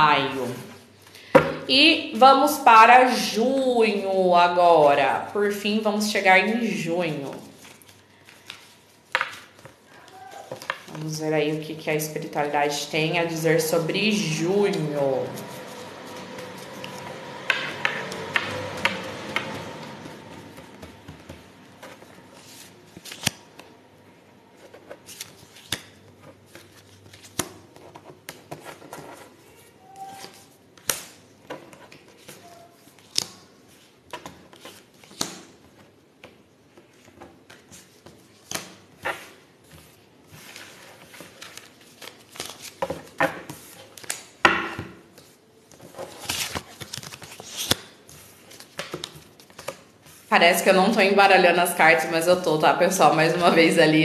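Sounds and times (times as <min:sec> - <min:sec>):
cards being shuffled: 0:15.2 - 0:23.7, 0:24.6 - 0:44.4, 0:45.1 - 0:50.3.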